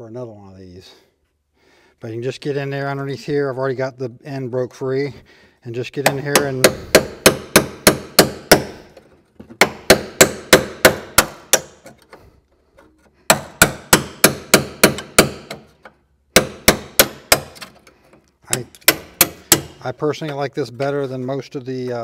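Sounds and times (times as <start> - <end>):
hammer striking metal chisel: 6.0 - 12.1, 13.3 - 17.8, 18.5 - 20.4.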